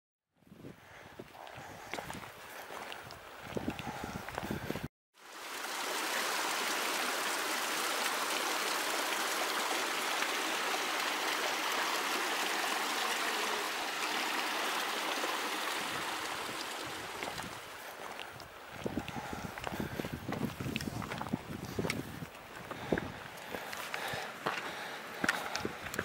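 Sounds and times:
running water rushing: 5.2 - 26.0.

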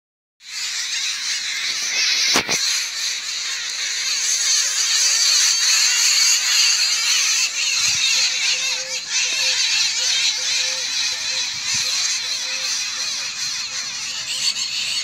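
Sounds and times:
birds chirping and calling: 0.4 - 15.0.

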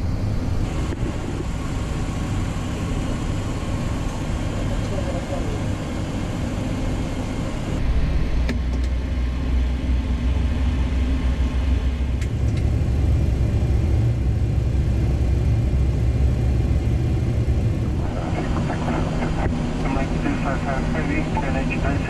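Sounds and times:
jet engines starting: 15.5 - 22.0.

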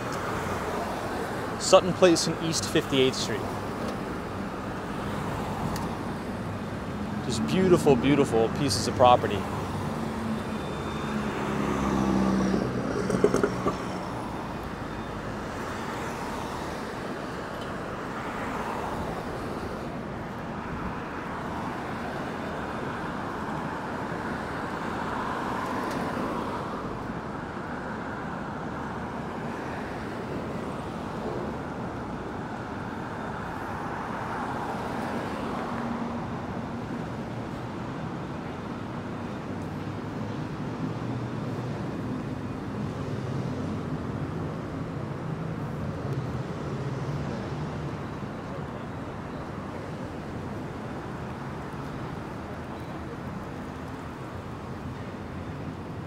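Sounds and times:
city street traffic: 0.0 - 56.0
vehicle engine hum: 6.2 - 15.4.

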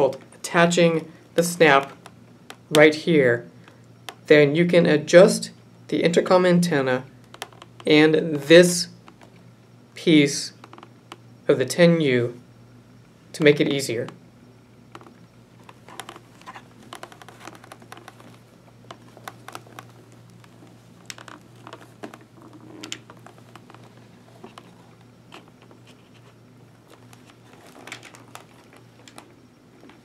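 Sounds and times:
fabric rustling: 15.6 - 30.0.

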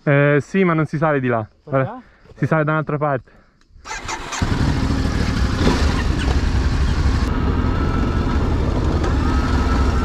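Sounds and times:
motorcycle engine idling: 4.0 - 10.0.

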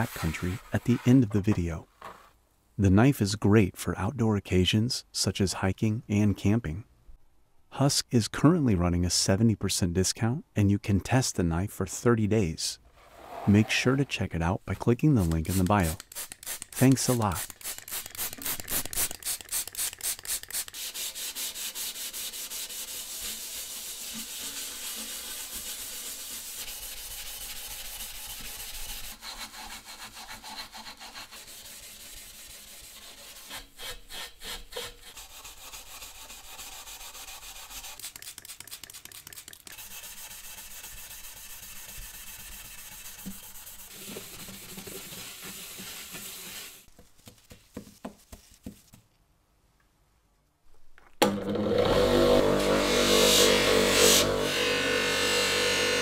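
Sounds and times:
steel wool scrubbing metal: 20.6 - 46.9.

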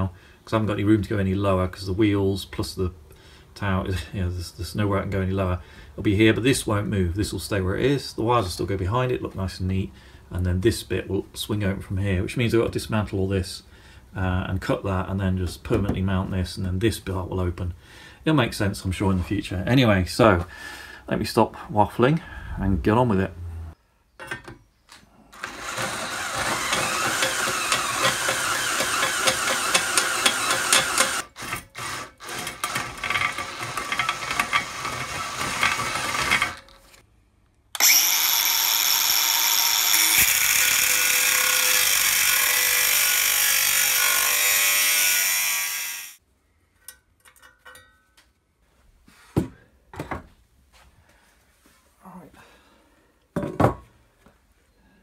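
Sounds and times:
angle grinder cutting steel: 25.4 - 36.6, 37.8 - 46.2
drill boring through steel: 25.4 - 36.6, 37.8 - 46.2.

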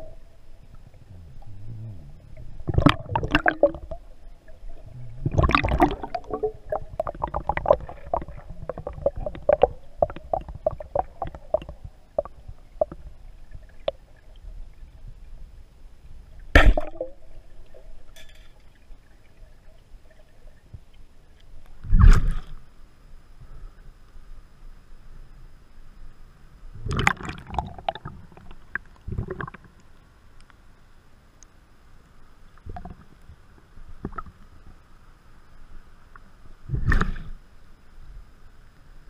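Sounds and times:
underwater crackling and bubbling: 0.0 - 22.8, 26.6 - 30.6, 32.5 - 37.7
speargun firing crack: 16.6 - 17.0.

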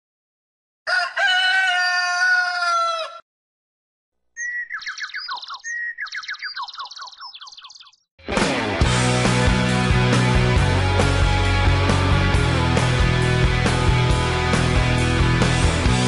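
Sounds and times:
rooster crowing: 0.8 - 3.2
bird chirping: 4.3 - 8.1.

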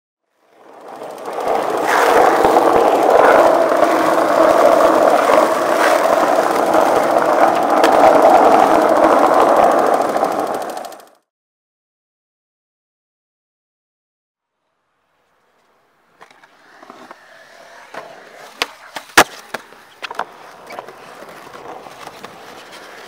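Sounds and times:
film projector clatter: 0.6 - 11.2.

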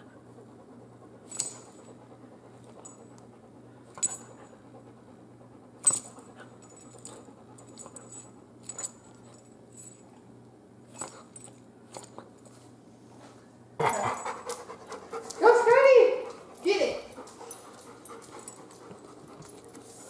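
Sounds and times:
faint steady hum: 0.0 - 20.0
collar tags clinking: 1.2 - 2.0, 5.8 - 12.7, 13.8 - 20.0
paws tapping on wooden floor: 13.9 - 20.0.

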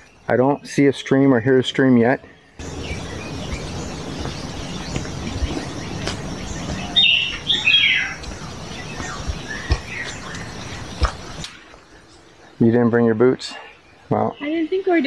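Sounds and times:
bird chirping and squawking: 2.6 - 11.4
footsteps rustling through brush: 2.6 - 11.5.

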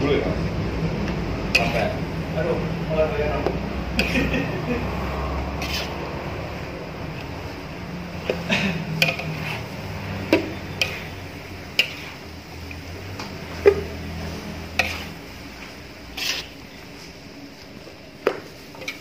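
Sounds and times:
metal spoon scraping in wok: 1.4 - 2.1, 4.0 - 17.2, 18.8 - 19.0.

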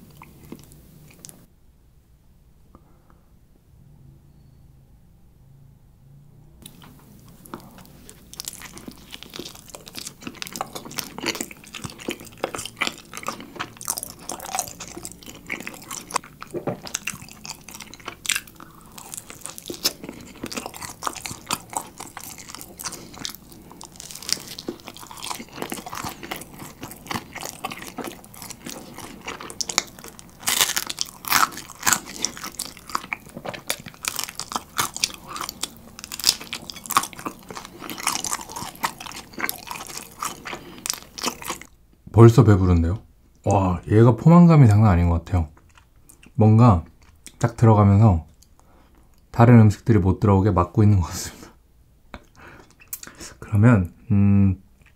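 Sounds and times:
crunching and chewing: 0.0 - 1.5, 6.6 - 41.8, 45.5 - 47.5, 52.2 - 53.4.

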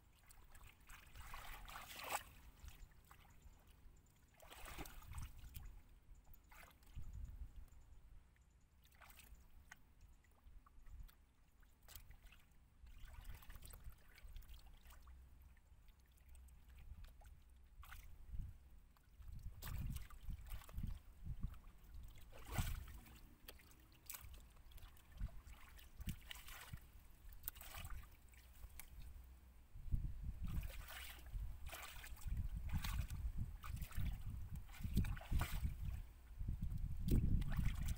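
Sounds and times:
hands splashing in muddy water: 0.2 - 3.3, 4.4 - 5.7, 8.8 - 9.8, 19.6 - 29.2, 30.4 - 36.0, 36.7 - 37.9.

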